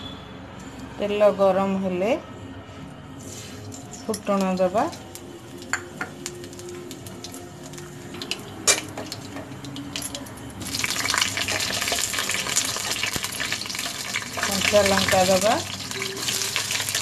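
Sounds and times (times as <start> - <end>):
seeds sizzling in hot oil: 4.1 - 17.0
crackles and pops: 10.7 - 14.7.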